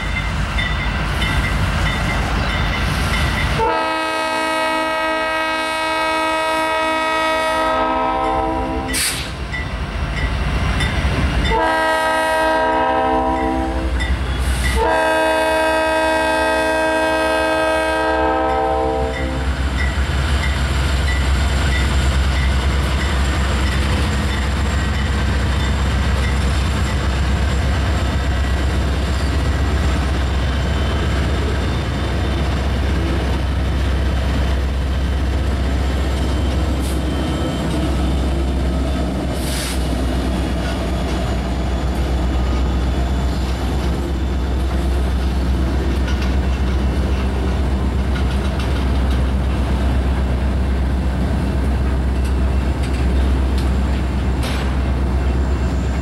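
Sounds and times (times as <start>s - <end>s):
crossing bell dinging: 0.0s - 3.6s
wheels clacking on rails: 0.0s - 3.8s, 7.0s - 56.0s
locomotive air horn blasts: 3.6s - 9.3s, 11.5s - 14.0s, 14.6s - 19.5s.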